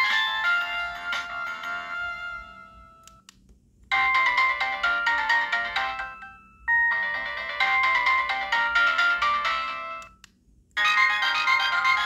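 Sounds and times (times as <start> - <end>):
mobile phone ringtones: 4.0 - 10.0, 10.8 - 12.0.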